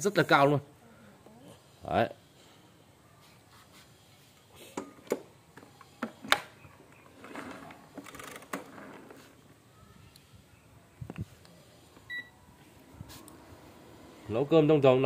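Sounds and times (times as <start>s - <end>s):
scraping and rustling: 7.1s - 9.5s.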